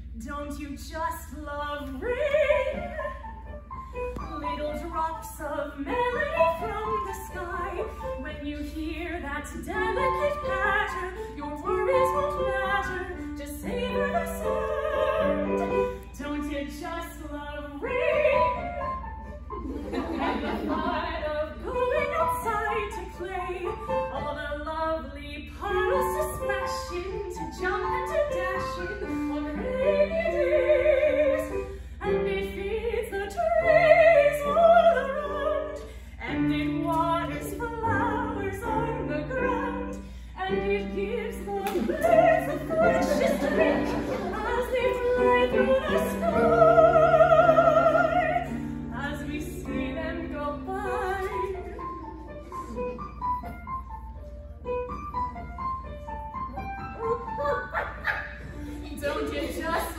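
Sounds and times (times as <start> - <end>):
woman singing operatically: 4.3 - 18.6, 20.8 - 51.8.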